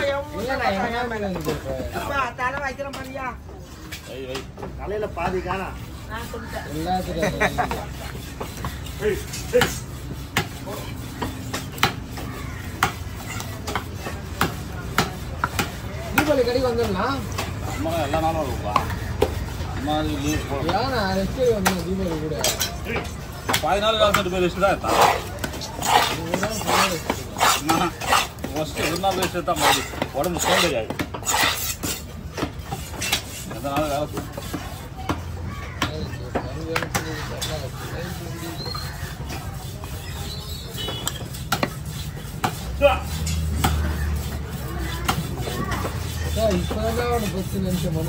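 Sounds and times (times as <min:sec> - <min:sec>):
cleaver chopping on wooden block: 0:08.4 - 0:16.4, 0:40.8 - 0:47.8.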